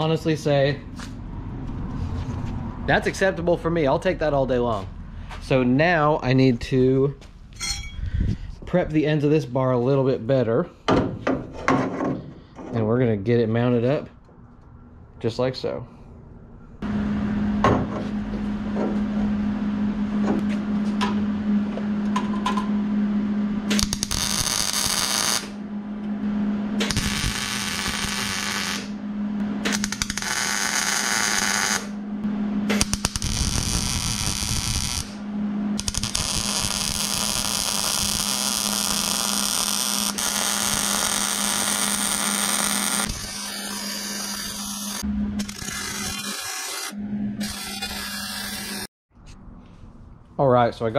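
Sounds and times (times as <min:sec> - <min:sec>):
steady low hum: 0:00.0 - 0:50.9
welder arc crackling: 0:23.7 - 0:25.6, 0:26.8 - 0:29.0, 0:29.7 - 0:31.9, 0:32.7 - 0:35.2, 0:35.8 - 0:48.9.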